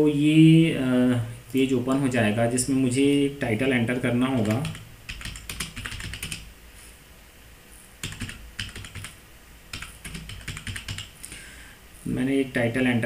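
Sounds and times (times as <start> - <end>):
keyboard typing: 3.6 - 6.5, 8.0 - 11.2.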